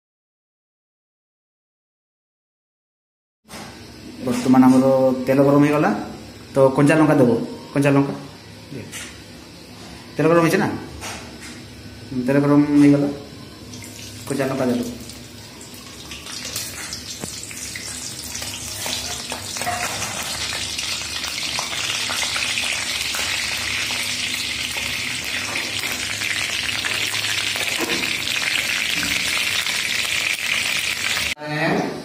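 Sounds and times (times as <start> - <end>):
chillies sizzling in hot oil: 13.8 - 31.4.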